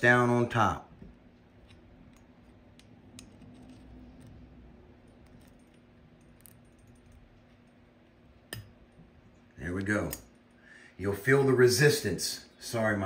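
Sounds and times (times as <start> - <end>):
steady low hum: 0.0 - 13.0
screwdriver clicks and scrapes: 1.3 - 7.8.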